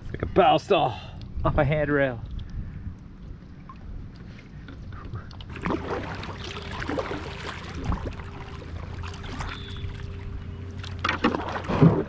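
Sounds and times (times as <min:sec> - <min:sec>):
wind rumbling on microphone: 0:01.2 - 0:06.1, 0:07.7 - 0:08.4
water lapping at hull: 0:02.3 - 0:12.0
loud splashes: 0:05.5 - 0:12.0
paddle strokes splashing: 0:05.5 - 0:12.0.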